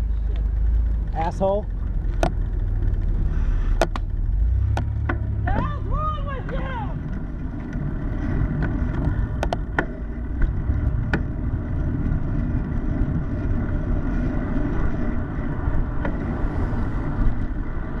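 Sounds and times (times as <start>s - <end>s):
road rumble: 0.0s - 18.0s
wind on microphone: 5.5s - 18.0s.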